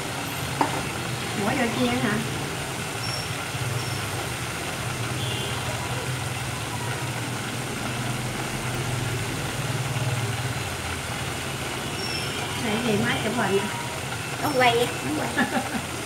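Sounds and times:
chicken deep-frying in oil: 0.0s - 16.0s.

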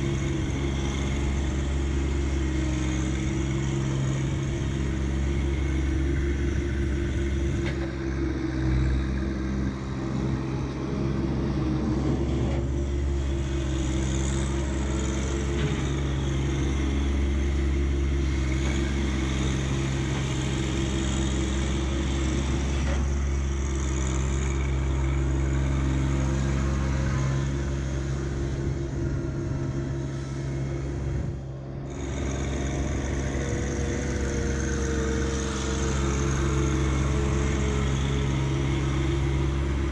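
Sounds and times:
tractor diesel engine running: 0.0s - 39.9s.

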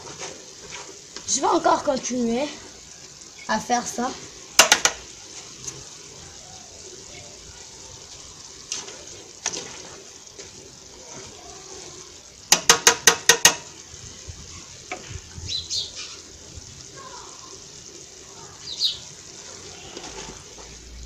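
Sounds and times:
leaves stirred in a metal pot: 0.0s - 16.9s, 19.0s - 21.0s
cooking pot hissing: 0.0s - 21.0s
utensil knocking against pot: 4.6s - 5.0s, 12.5s - 13.7s.

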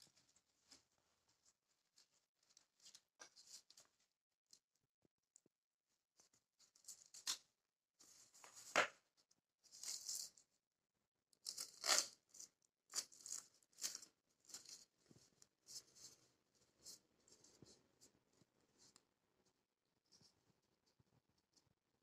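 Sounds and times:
velcro crackling and ripping: 11.5s - 12.2s.

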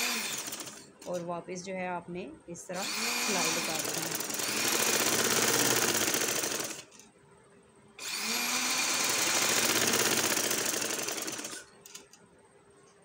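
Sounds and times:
sewing machine stitching: 0.0s - 1.2s, 2.8s - 7.0s, 8.0s - 12.1s.

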